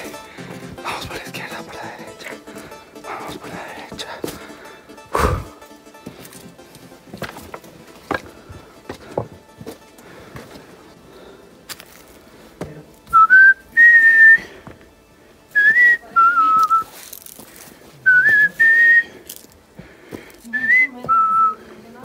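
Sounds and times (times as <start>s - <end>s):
person whistling a tune: 13.1s - 14.5s, 15.6s - 16.9s, 18.1s - 19.2s, 20.5s - 21.6s.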